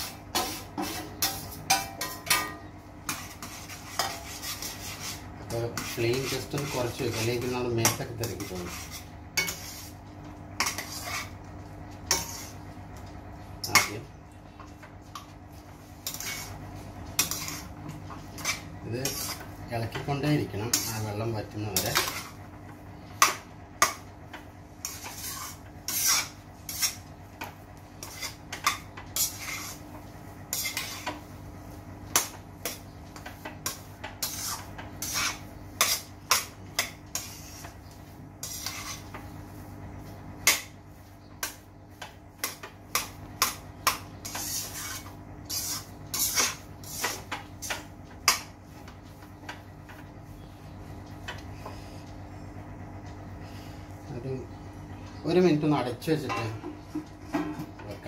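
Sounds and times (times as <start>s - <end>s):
spatula scraping metal pan: 0.0s - 10.0s, 10.6s - 11.4s, 12.1s - 12.6s, 15.8s - 22.4s, 24.8s - 29.9s, 30.5s - 31.3s, 32.2s - 39.3s, 41.4s - 48.5s.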